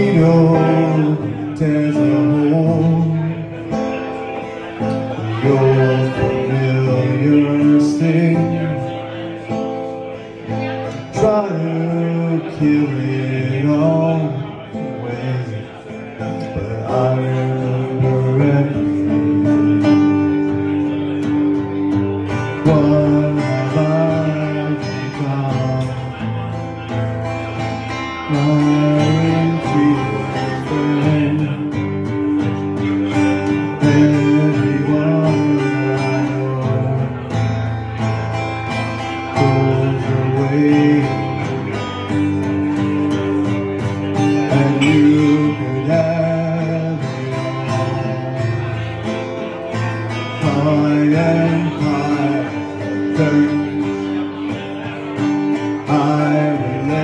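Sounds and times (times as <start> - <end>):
acoustic guitar chords: 0.0 - 57.0
man singing into microphone: 0.0 - 57.0.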